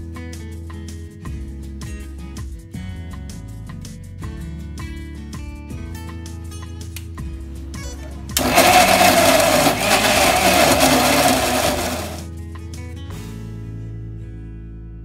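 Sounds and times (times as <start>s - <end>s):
mixer grinder running: 8.0s - 12.3s.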